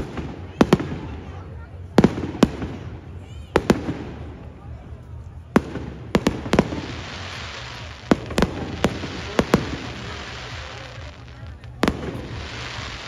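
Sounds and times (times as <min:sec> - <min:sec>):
crackling hiss of firework stars: 0:00.0 - 0:13.0
firework shells bursting with bangs: 0:05.6 - 0:13.0.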